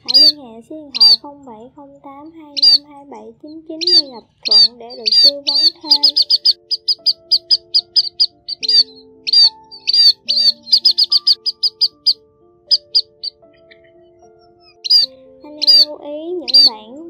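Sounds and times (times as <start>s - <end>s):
bird calls sharp high chips: 0.0s - 0.4s, 1.0s - 1.2s, 2.6s - 2.8s, 3.8s - 15.9s, 16.5s - 16.7s
sustained low music notes: 0.0s - 17.0s.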